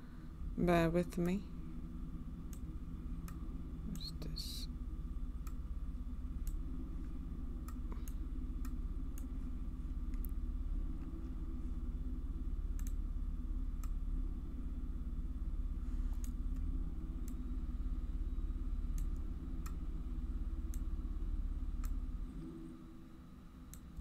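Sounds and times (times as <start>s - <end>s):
steady low hum: 0.0s - 24.0s
computer mouse clicking: 12.8s - 13.0s.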